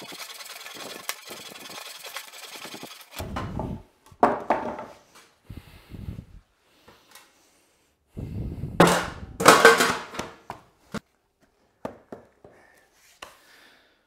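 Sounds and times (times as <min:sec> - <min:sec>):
boards knocking lightly: 0:03.3 - 0:04.9
timber clattering onto floor: 0:04.2 - 0:05.0, 0:08.8 - 0:10.6.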